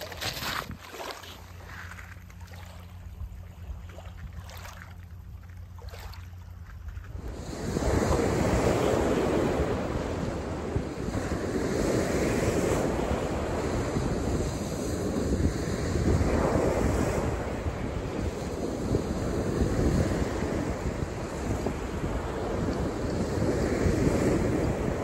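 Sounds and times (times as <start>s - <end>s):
wind buffeting microphone: 0.0s - 1.0s, 6.5s - 25.0s
water lapping over pebbles: 0.0s - 7.4s
low wind rumble: 0.0s - 25.0s
surf breaking on shore: 7.2s - 25.0s.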